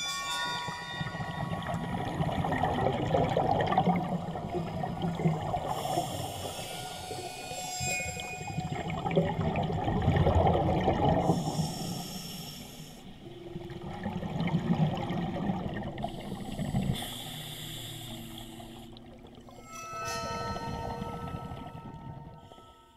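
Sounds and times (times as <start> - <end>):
rumble of exhaled bubbles: 1.1 - 6.1, 8.8 - 11.6, 13.3 - 17.1
regulator inhale hiss: 5.6 - 7.9, 11.3 - 13.3, 16.0 - 19.1.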